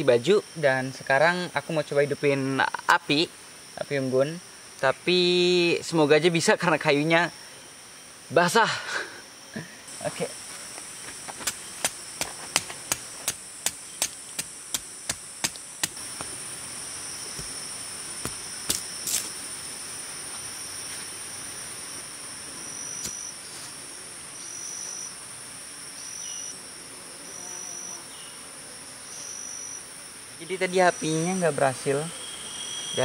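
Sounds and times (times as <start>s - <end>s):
insects buzzing: 0.0s - 33.0s
insect calling in short notes: 22.5s - 25.2s, 26.0s - 26.6s, 32.0s - 33.0s.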